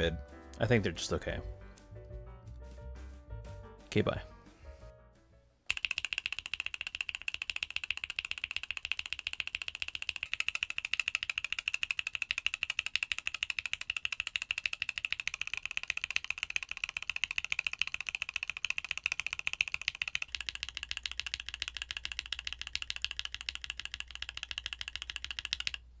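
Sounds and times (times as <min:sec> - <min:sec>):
mechanical keyboard typing: 0:05.7 - 0:25.8.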